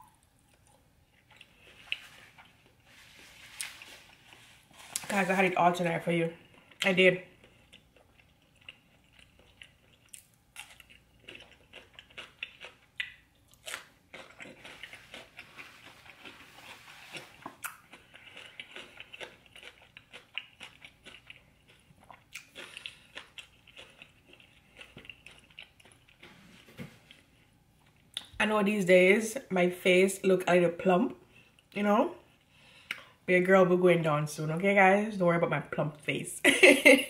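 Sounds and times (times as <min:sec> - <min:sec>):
person chewing food: 0:00.0 - 0:05.1, 0:06.4 - 0:28.3.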